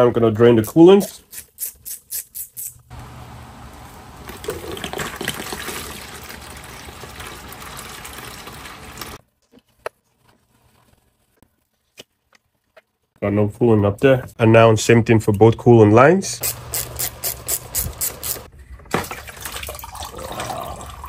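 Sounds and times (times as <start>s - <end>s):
coolant pouring out: 4.2s - 9.2s.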